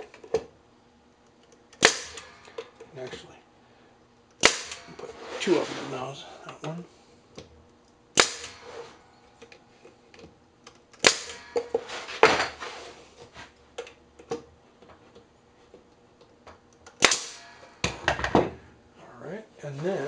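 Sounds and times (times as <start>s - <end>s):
nail gun shot with air hiss: 1.8s - 2.5s, 4.4s - 5.1s, 8.1s - 9.0s, 11.0s - 12.5s, 17.0s - 18.3s.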